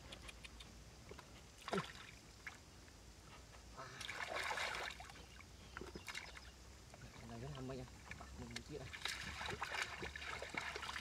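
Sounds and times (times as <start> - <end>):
hands splashing in muddy water: 4.0 - 5.1, 8.6 - 11.0.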